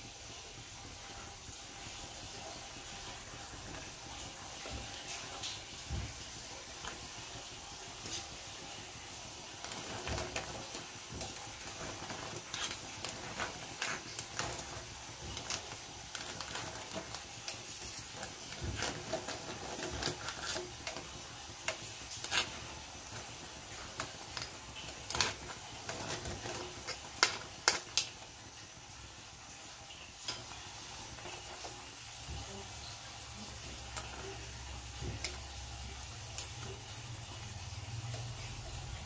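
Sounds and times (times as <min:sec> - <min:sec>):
faint high whine: 0:00.0 - 0:39.0
pot boiling: 0:00.0 - 0:39.0.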